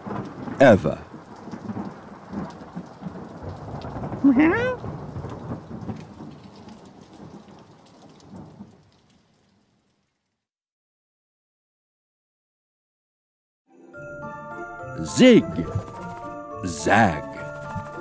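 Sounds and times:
low thunder rumbling: 0:00.0 - 0:08.9
rain: 0:00.0 - 0:10.5.

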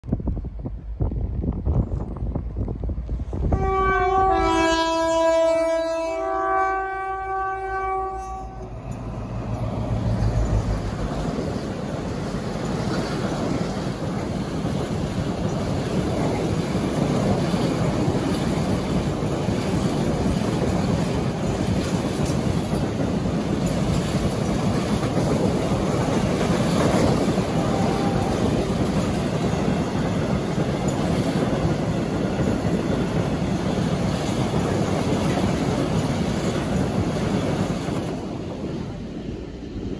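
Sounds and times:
train rumbling and clattering past: 0:00.0 - 0:39.9
locomotive horn: 0:03.5 - 0:08.8, 0:27.5 - 0:28.6.

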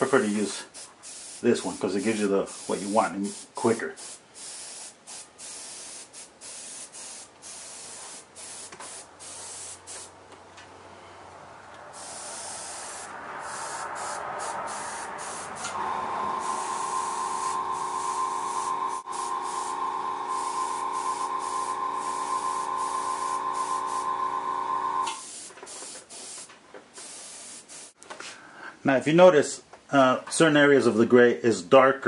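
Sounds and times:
airbrush spraying hiss: 0:00.2 - 0:10.2, 0:11.9 - 0:24.4, 0:25.0 - 0:28.0
mechanical hum: 0:14.2 - 0:25.2.

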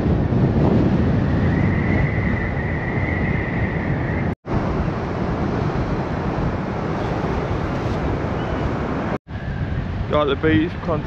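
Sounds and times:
wind buffeting microphone: 0:00.0 - 0:11.0
surf: 0:04.5 - 0:09.2.

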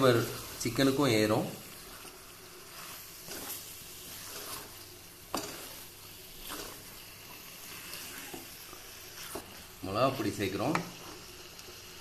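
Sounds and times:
chicken sizzling in oil: 0:00.0 - 0:12.0
spatula scraping pan: 0:01.8 - 0:11.4.

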